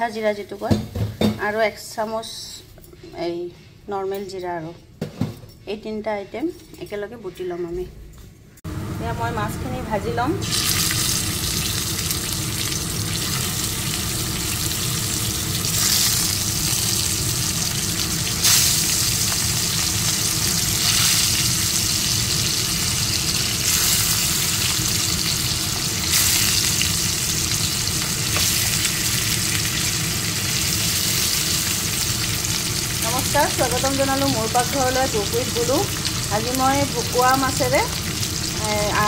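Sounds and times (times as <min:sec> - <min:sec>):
fish sizzling in hot oil: 0:10.4 - 0:39.0.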